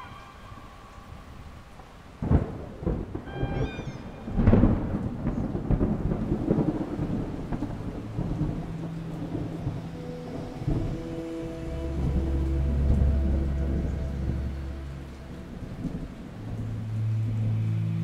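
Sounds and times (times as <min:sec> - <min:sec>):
rain: 0:00.0 - 0:18.0
thunder crack and rumble: 0:01.5 - 0:18.0.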